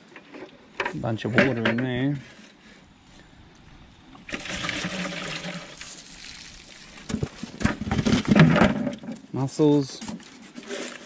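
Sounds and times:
water pouring and trickling: 0:04.2 - 0:07.6.

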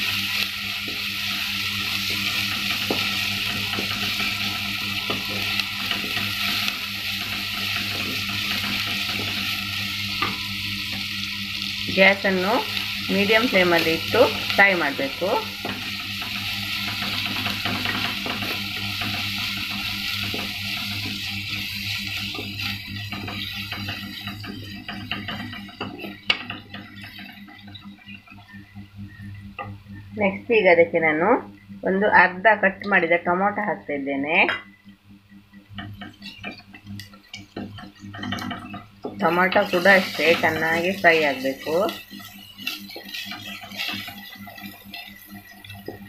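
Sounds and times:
onion sizzling in hot oil: 0:00.0 - 0:30.6, 0:35.5 - 0:46.0
steady low hum: 0:00.0 - 0:46.0
wooden spatula scraping pot: 0:37.3 - 0:46.0.

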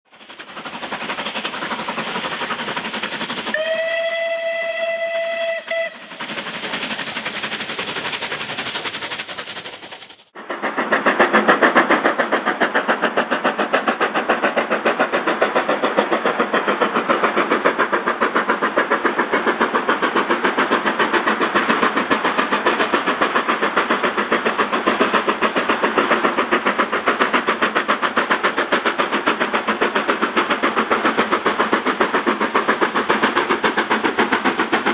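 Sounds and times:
steam locomotive exhaust chuffs: 0:00.0 - 0:34.9
steam locomotive whistle: 0:03.5 - 0:06.2
steady rushing noise: 0:05.9 - 0:34.9.

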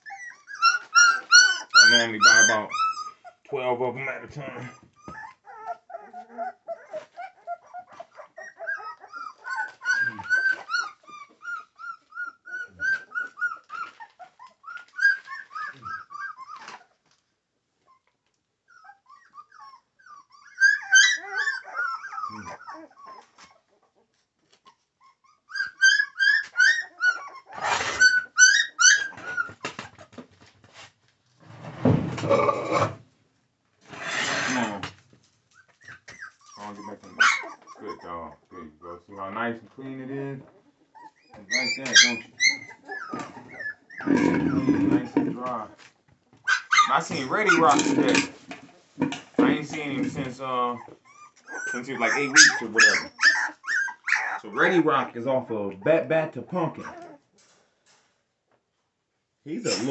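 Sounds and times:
dog whining: 0:00.0 - 0:03.5, 0:04.5 - 0:17.0, 0:17.8 - 0:24.0, 0:24.6 - 0:30.1, 0:32.2 - 0:33.0, 0:35.5 - 0:38.6, 0:40.5 - 0:45.7, 0:46.4 - 0:54.7, 0:56.8 - 0:57.3.

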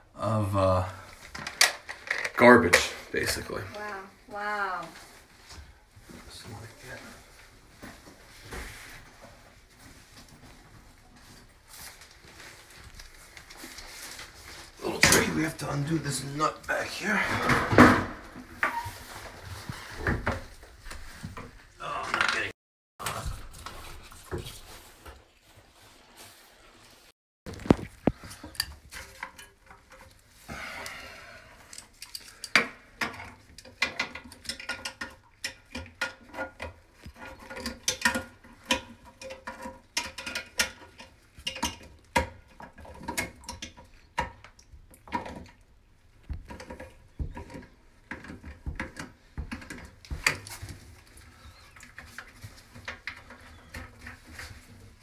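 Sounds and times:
plastic parts clicking in toilet tank: 0:01.2 - 0:02.9, 0:31.6 - 0:45.6, 0:46.2 - 0:54.7.

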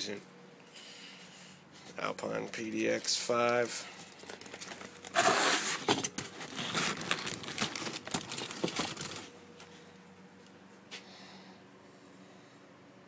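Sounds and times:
cardboard and plastic packaging rustling: 0:02.5 - 0:09.8.

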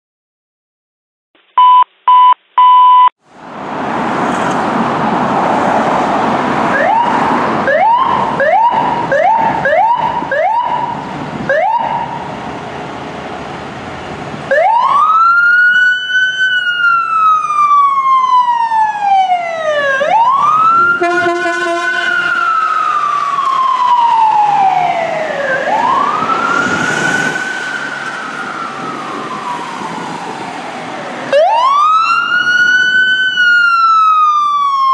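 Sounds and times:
vehicle noise: 0:03.2 - 0:34.9
ambulance siren wailing: 0:06.6 - 0:12.4, 0:14.5 - 0:34.9
rising siren chirps: 0:14.5 - 0:34.9
vehicle horn blast: 0:20.9 - 0:22.5.

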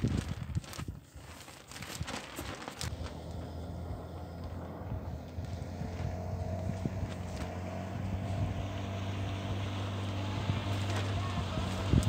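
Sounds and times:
low engine hum: 0:02.6 - 0:12.0.

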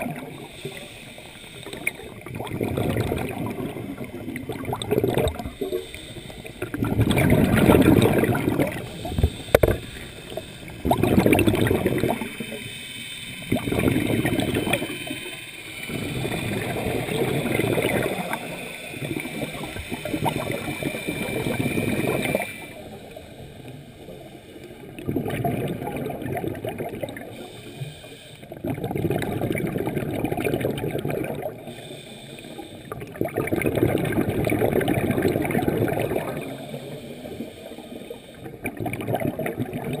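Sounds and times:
rush of exhaled bubbles: 0:00.0 - 0:00.8, 0:01.6 - 0:12.7, 0:13.4 - 0:15.2, 0:15.8 - 0:23.0, 0:24.9 - 0:27.4, 0:28.5 - 0:31.7, 0:32.8 - 0:37.4, 0:38.4 - 0:40.0
diver breathing through regulator: 0:00.1 - 0:02.2, 0:04.9 - 0:25.0, 0:27.1 - 0:28.6, 0:31.5 - 0:33.1, 0:36.2 - 0:38.7.

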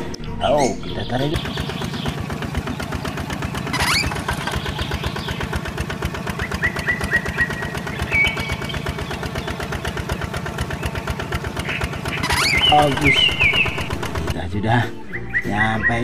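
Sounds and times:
small engine chugging: 0:00.0 - 0:16.0.

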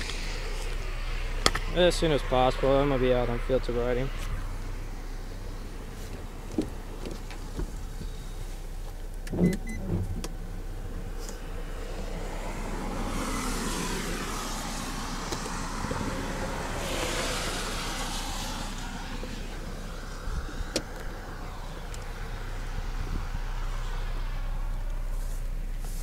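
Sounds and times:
constant low hum: 0:00.0 - 0:26.0
hiss of noise: 0:12.8 - 0:20.7.

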